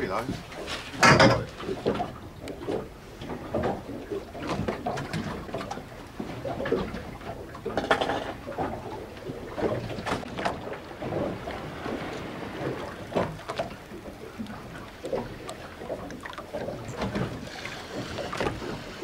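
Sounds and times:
sea noise: 0.0s - 19.0s
knocks and clatters: 1.0s - 2.0s.

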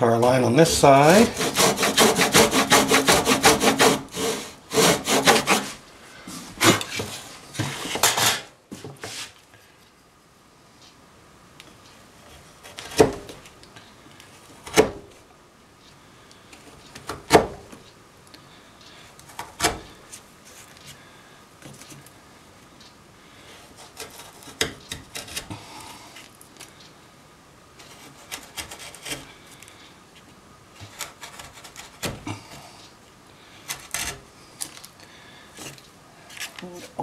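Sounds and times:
chisel blade scraping wood: 0.6s - 5.8s, 6.6s - 8.4s, 23.6s - 25.5s, 27.8s - 29.3s, 30.8s - 32.5s, 33.6s - 34.2s.

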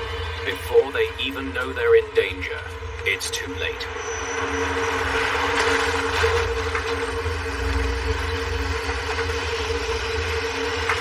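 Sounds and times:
piston engines droning: 0.0s - 11.0s.

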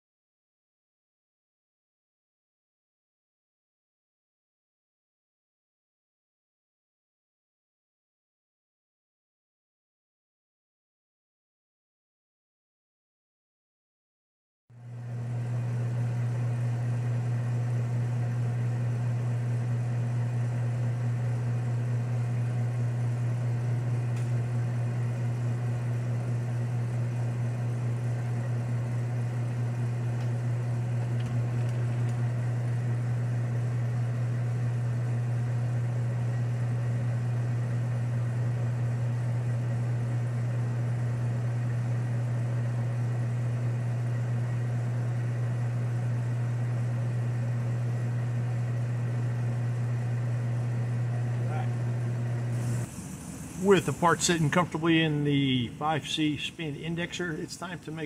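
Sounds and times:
electric motor humming: 15.1s - 58.0s.

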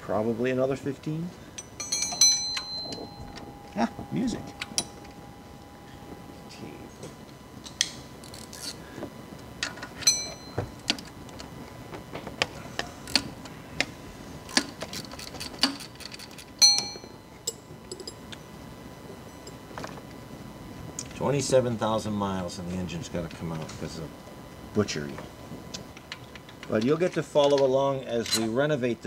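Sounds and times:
metal hand tools clinking: 1.6s - 5.2s
ringing wrench taps: 1.6s - 5.2s, 10.0s - 11.0s, 16.6s - 18.2s.

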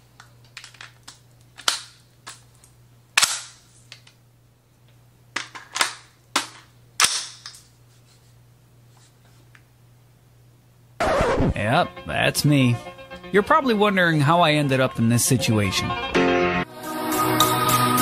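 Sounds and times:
steady low hum: 6.0s - 16.0s.

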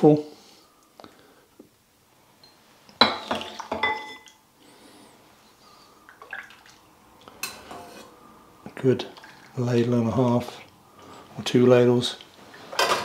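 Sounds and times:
liquid splashing: 6.0s - 7.4s, 9.0s - 9.8s.

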